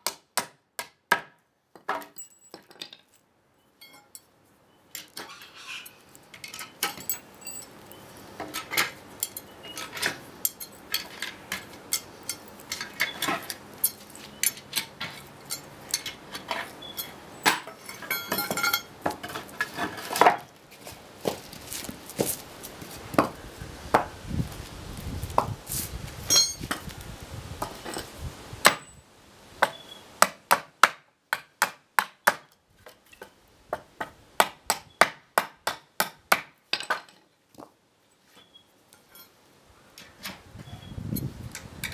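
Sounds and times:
wooden blocks knocking and scraping: 1.1s - 3.2s, 8.3s - 24.2s.

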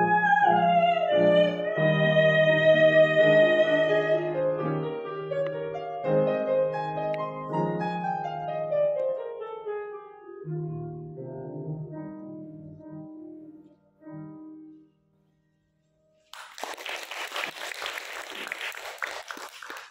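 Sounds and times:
upright piano playing: 0.0s - 15.3s
audience applause: 16.3s - 19.9s.

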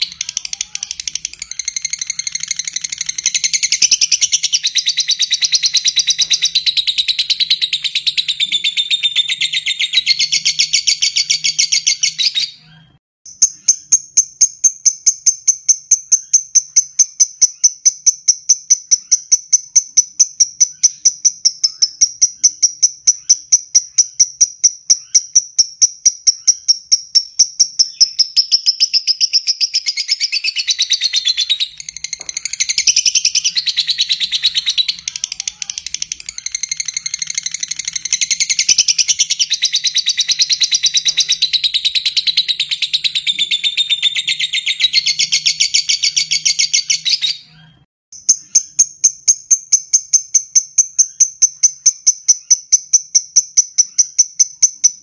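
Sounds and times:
lovebird shrill chattering trill: 0.0s - 12.6s, 15.7s - 47.6s
lovebird ticking calls: 13.3s - 47.3s.

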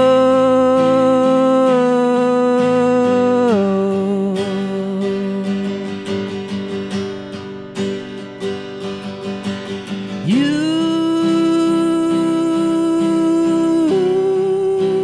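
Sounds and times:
man singing: 0.0s - 6.8s, 10.0s - 15.0s
strummed acoustic guitar: 0.0s - 15.0s.

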